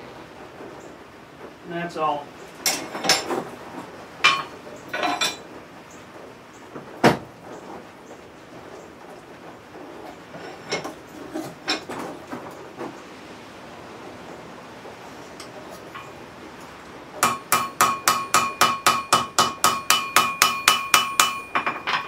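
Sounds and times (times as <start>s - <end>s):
metal tools clanking: 2.6s - 3.5s, 4.2s - 5.5s, 10.3s - 12.1s, 15.4s - 22.0s.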